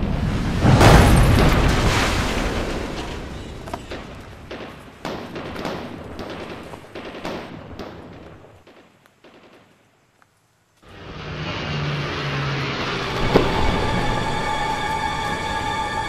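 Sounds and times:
explosion rumble: 0.0 - 6.3
gunshots: 0.6 - 10.0.

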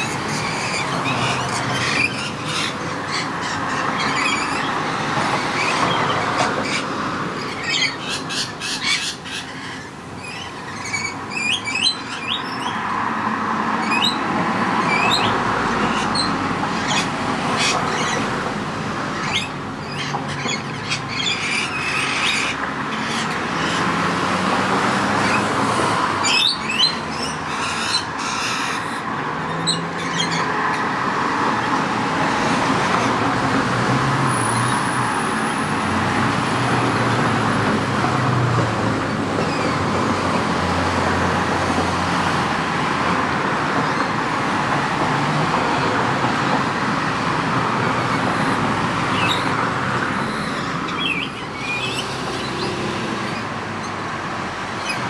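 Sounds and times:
urban traffic rumbling: 0.0 - 55.0.

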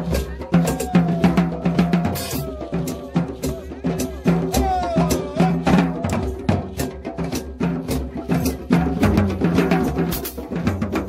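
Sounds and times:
drum kit with snare and cymbal: 0.0 - 11.0
hand drums: 0.0 - 11.0.

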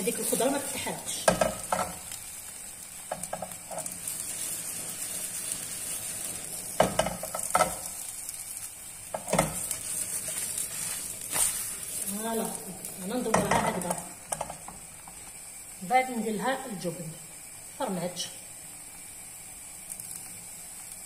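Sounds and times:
crepe sizzling in frying pan: 0.0 - 21.0
pan knocking and scraping on grate: 1.1 - 2.0, 3.1 - 4.0, 6.7 - 7.9, 9.1 - 11.6, 13.2 - 14.8.

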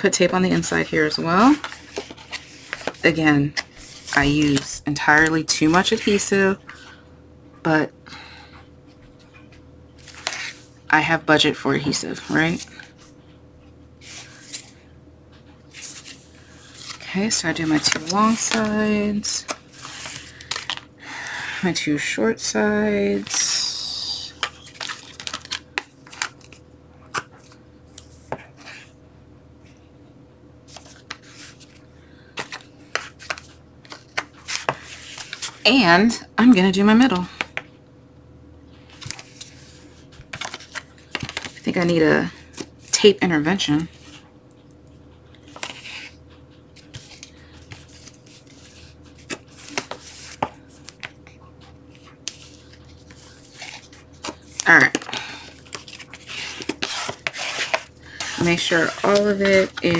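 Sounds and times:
paper and tape rustling: 0.6 - 4.8, 15.7 - 20.8, 46.8 - 51.0, 51.9 - 59.9.

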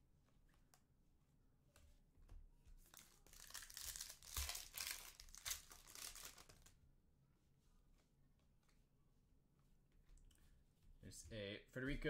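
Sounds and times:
card pack wrapper tearing: 3.0 - 6.7.

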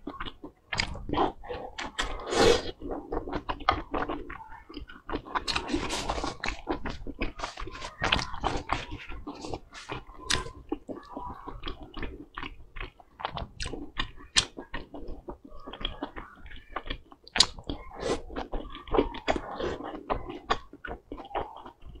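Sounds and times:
person chewing oily food: 0.0 - 22.0
wet mouth clicks and smacks: 16.8 - 17.8.

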